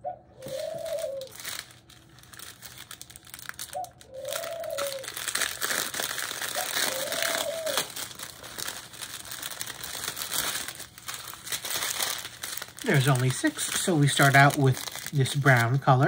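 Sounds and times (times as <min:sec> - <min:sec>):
bird calling: 0:00.0 - 0:01.4, 0:03.6 - 0:05.3, 0:06.4 - 0:08.0
plastic bags crinkling: 0:00.4 - 0:16.0.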